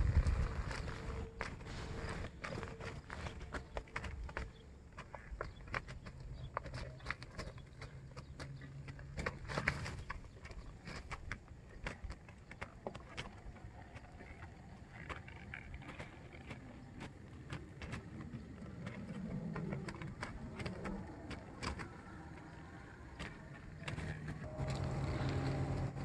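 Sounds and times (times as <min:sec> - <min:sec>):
hoofbeats on dirt: 0:00.0 - 0:26.0
low rumble: 0:24.3 - 0:26.0.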